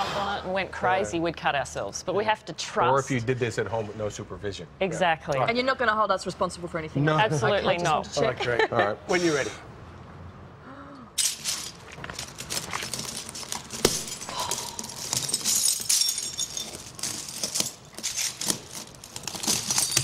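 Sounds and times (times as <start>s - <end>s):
broken glass crunching underfoot: 11.2s - 20.0s.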